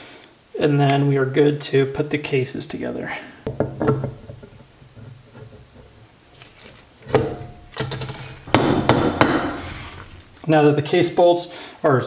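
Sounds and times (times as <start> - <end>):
mallet knocking on metal: 7.1 - 10.4.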